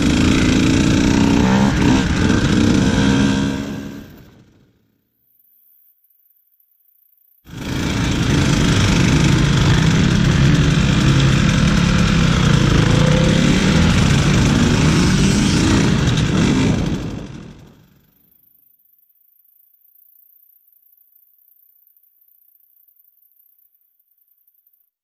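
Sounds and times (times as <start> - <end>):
dirt bike engine running: 0.0 - 4.8, 7.5 - 18.2.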